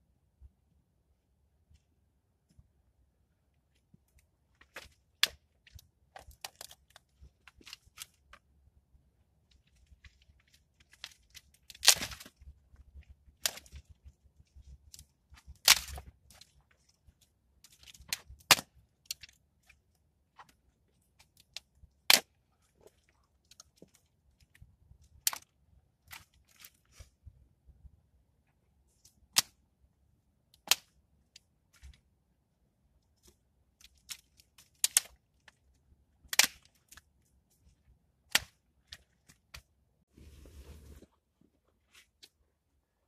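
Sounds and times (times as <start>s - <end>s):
twigs crackling and rustling: 3.7s - 8.5s, 9.4s - 27.2s, 33.2s - 39.7s
branches snapping: 4.6s - 8.1s, 10.8s - 12.5s, 15.4s - 16.1s, 36.3s - 37.0s.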